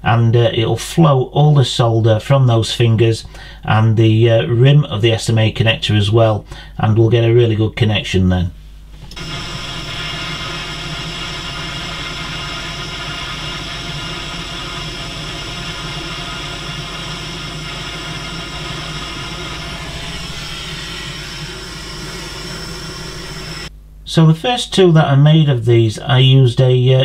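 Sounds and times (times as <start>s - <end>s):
blowtorch flame hissing: 9.1s - 23.7s.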